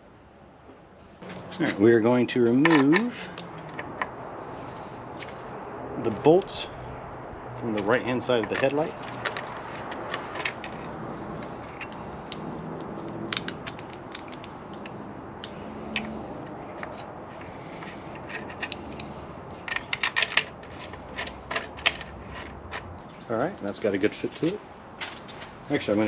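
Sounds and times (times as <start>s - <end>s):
metal bracket clinking: 2.4s - 4.2s, 8.0s - 12.4s, 15.8s - 17.0s.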